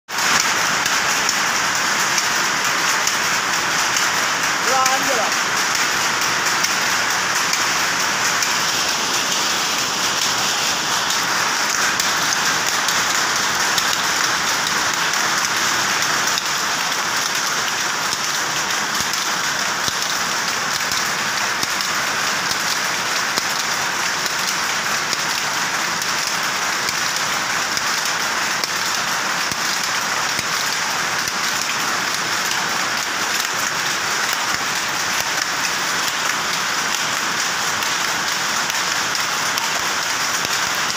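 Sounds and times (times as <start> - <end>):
power looms clattering: 0.1 - 40.9.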